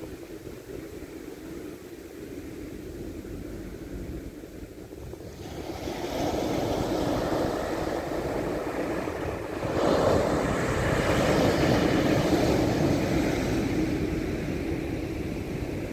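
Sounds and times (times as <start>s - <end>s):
waves breaking on beach: 4.9s - 15.9s.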